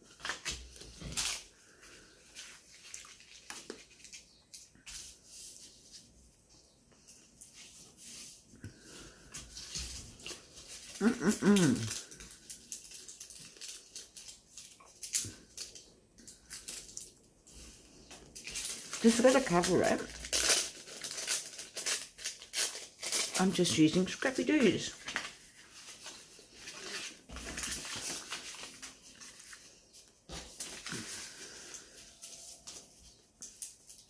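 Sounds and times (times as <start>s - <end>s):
short whining vocal sound: 11.0s - 12.0s.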